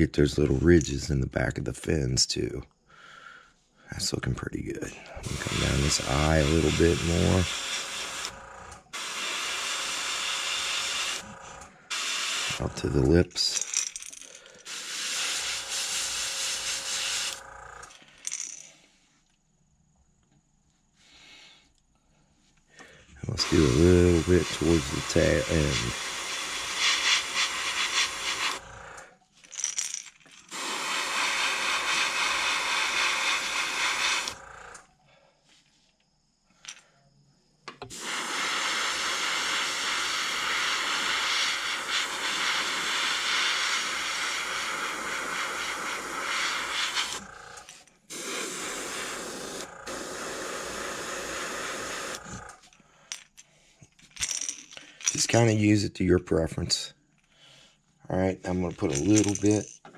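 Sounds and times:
airbrush spraying hiss: 5.2 - 8.4, 9.0 - 11.2, 11.9 - 12.7, 14.7 - 17.4, 23.4 - 28.6, 30.5 - 34.4, 37.9 - 47.2, 48.1 - 52.5.

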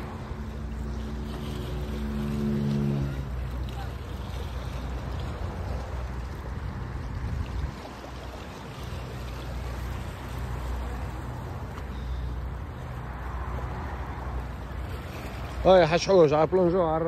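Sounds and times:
wind rumble on microphone: 0.0 - 11.7
seawater lapping against rocks: 0.0 - 17.0.

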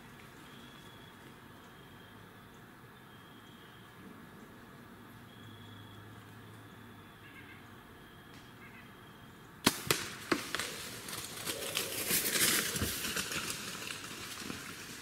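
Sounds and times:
deer crashing through dry leaves: 9.6 - 15.0.

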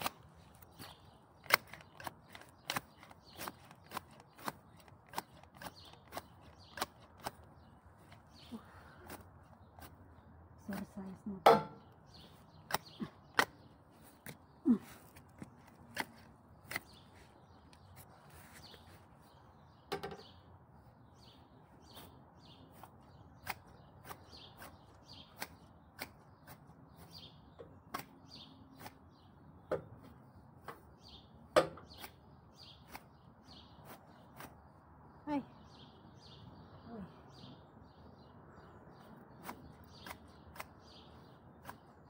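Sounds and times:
hand shears snipping grass: 0.0 - 11.8, 12.5 - 17.2, 21.8 - 29.3, 31.8 - 34.7, 39.2 - 42.0.

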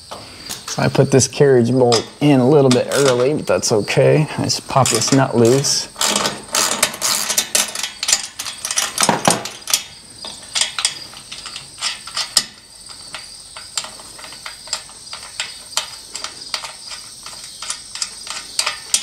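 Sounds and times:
ratchet wrench clicking: 4.9 - 19.0.

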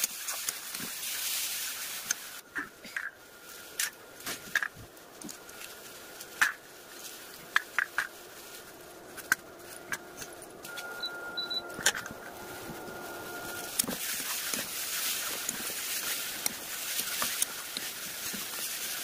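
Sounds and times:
faint high whine: 9.5 - 16.7.

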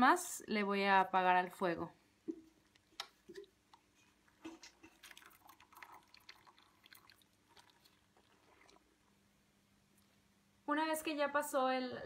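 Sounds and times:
faint steady hum: 0.0 - 12.0
wet cloth squelching: 2.2 - 9.1.

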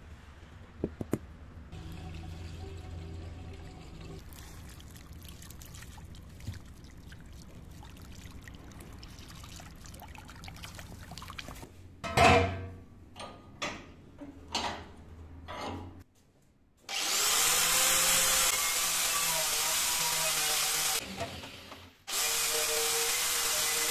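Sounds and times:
water pouring onto ground: 1.8 - 11.6
water running from hose: 1.8 - 11.6.

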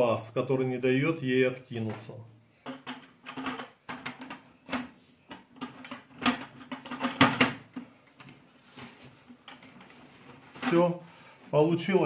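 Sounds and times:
sheet metal panels clicking and rattling: 2.6 - 8.0.

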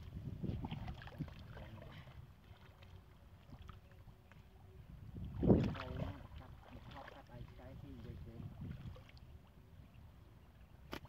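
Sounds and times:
wind on microphone: 0.0 - 2.4, 4.6 - 10.2
muddy water sloshing: 0.0 - 9.9
loud splash: 5.3 - 7.3.

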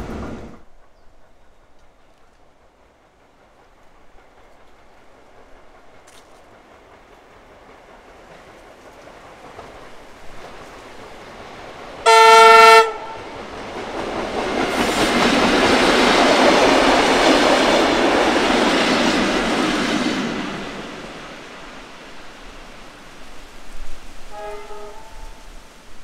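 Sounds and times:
train running on rails: 0.0 - 26.0
train horn blast: 12.0 - 13.3, 24.3 - 25.8.

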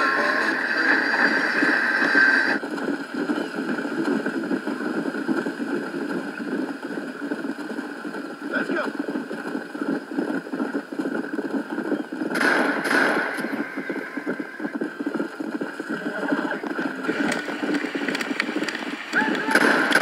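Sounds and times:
horse hooves clip-clopping: 0.0 - 20.0
horse whinnying: 15.9 - 17.0.

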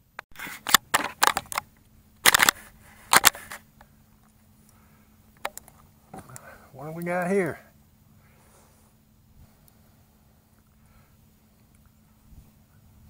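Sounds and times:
faint steady hum: 0.0 - 13.0
camera handling clicks and knocks: 0.6 - 3.6.

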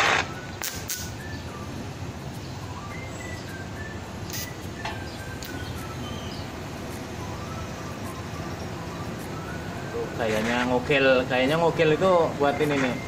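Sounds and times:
welding arc hissing and humming: 0.0 - 1.2, 4.3 - 4.5.

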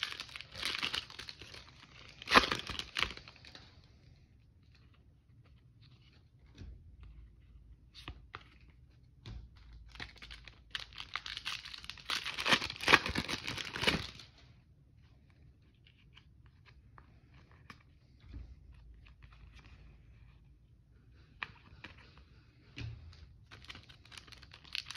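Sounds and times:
foil wrapper tearing and crinkling: 0.0 - 3.4, 10.1 - 14.3, 23.6 - 24.9.

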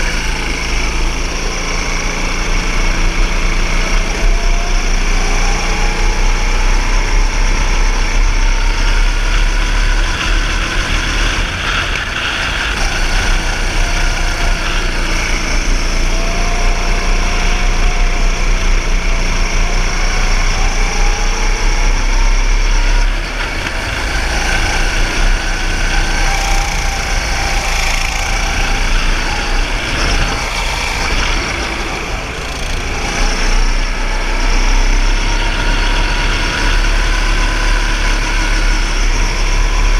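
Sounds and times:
go-kart engine revving: 0.0 - 39.9.

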